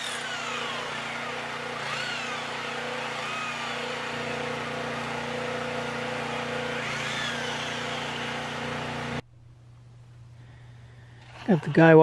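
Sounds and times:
small engine humming: 0.0s - 9.2s.

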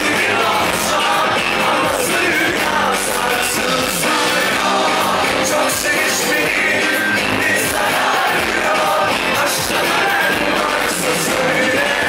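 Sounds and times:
backing vocalists singing: 0.0s - 12.0s
man singing lead vocals: 0.0s - 12.0s
pop band playing live: 0.0s - 12.0s.

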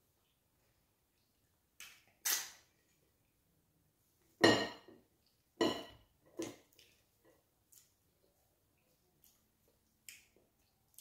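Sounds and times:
ceramic dishes clinking: 4.4s - 4.9s, 5.6s - 6.0s.

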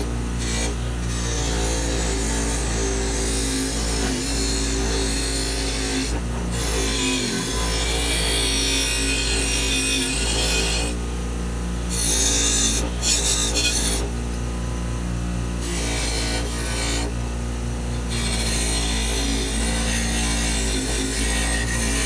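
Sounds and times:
wire wheel scratching metal: 0.0s - 11.0s, 18.1s - 22.0s
bench grinder motor humming: 0.0s - 22.0s.

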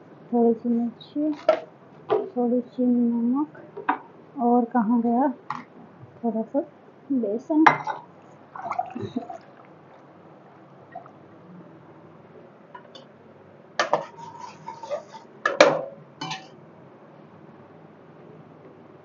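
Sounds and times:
metal ladle scraping metal pan: 13.8s - 15.3s.

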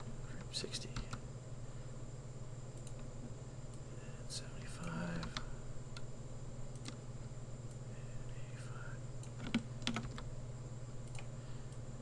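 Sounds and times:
steady low hum: 0.0s - 12.0s
keyboard key presses: 9.2s - 10.3s.

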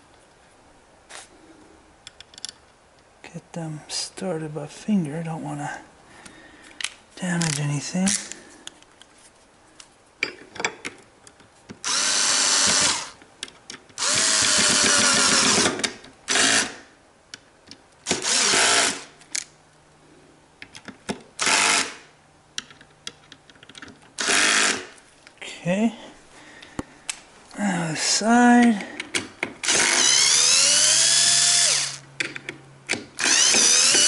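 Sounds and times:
small clicks and handling noises: 2.0s - 3.1s, 6.2s - 11.8s, 13.2s - 14.0s, 20.6s - 21.3s, 22.6s - 24.2s
cordless drill driving screws: 11.8s - 13.2s, 14.0s - 16.8s, 18.0s - 19.1s, 21.4s - 22.1s, 24.2s - 24.9s, 29.6s - 32.0s, 33.2s - 34.0s.

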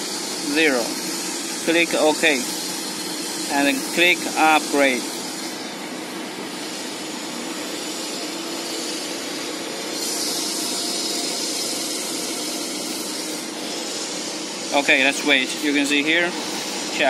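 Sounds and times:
hiss: 0.0s - 5.7s, 6.5s - 17.0s
mechanical hum: 0.0s - 17.0s.

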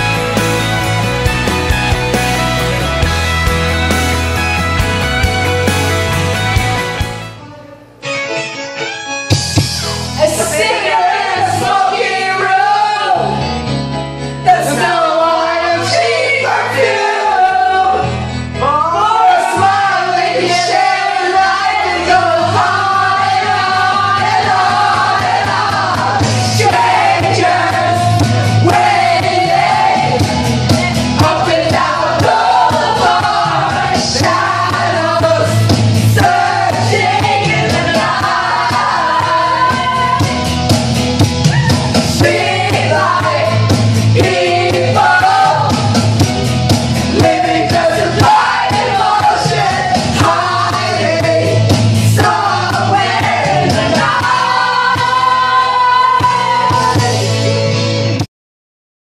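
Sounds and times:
loud bass-heavy music: 0.0s - 8.0s, 21.7s - 58.3s
group singing and yelling: 10.2s - 13.4s, 14.4s - 46.2s, 46.9s - 57.4s.

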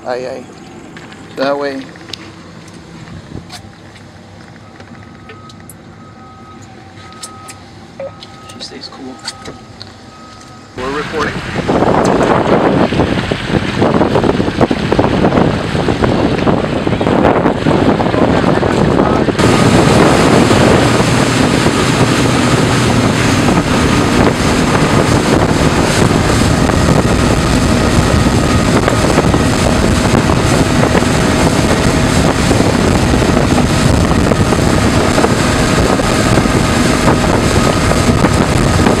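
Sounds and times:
outboard motors whining: 0.0s - 39.0s
wind on microphone: 2.9s - 3.9s, 10.8s - 39.0s
water rushing past hull: 19.3s - 39.0s.

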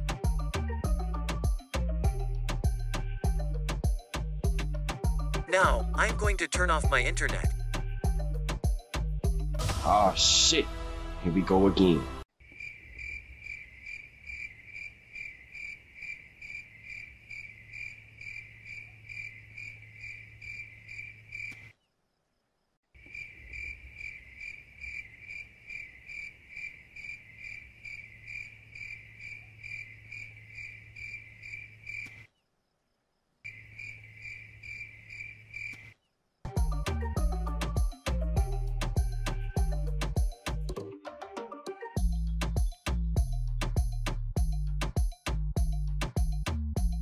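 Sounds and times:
crickets chirping: 12.3s - 36.8s.

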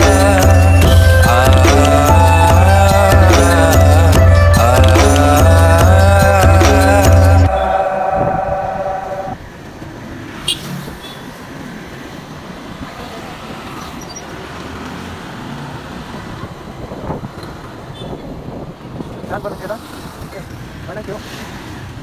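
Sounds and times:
background music: 0.0s - 9.4s
traffic: 0.0s - 22.0s
wind and road noise: 0.0s - 22.0s.

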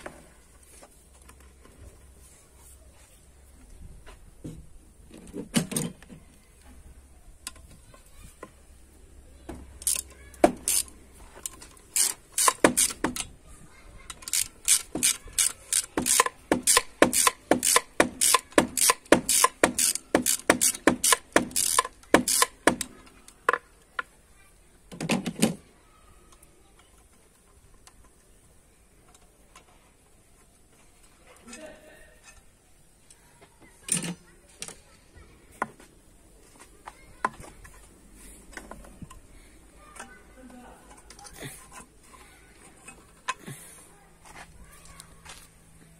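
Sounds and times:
ratchet wrench clicking: 9.8s - 13.2s, 14.1s - 22.9s.

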